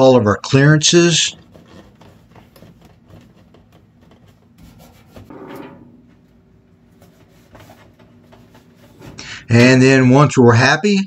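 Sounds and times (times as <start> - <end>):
paper rubbing and rustling: 1.1 - 5.3, 6.8 - 9.2
scraping rasp: 1.2 - 6.0.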